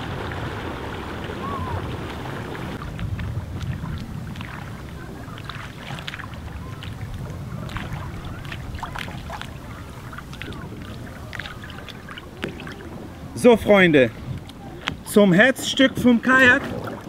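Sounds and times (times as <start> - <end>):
low steady rumble: 0.0 - 14.8
water lapping against hull: 0.0 - 17.0.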